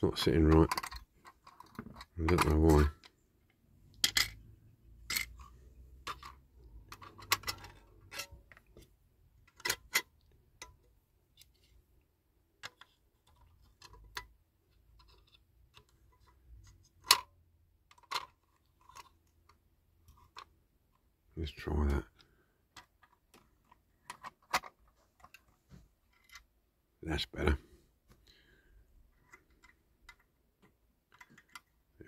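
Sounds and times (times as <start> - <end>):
small clicks of toy parts: 17.9 - 19.6.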